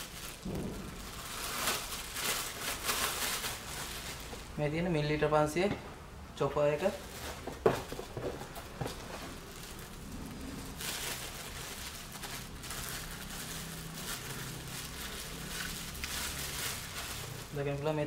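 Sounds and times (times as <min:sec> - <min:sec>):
packaging rustling and crinkling: 0:00.0 - 0:04.6, 0:06.7 - 0:18.0.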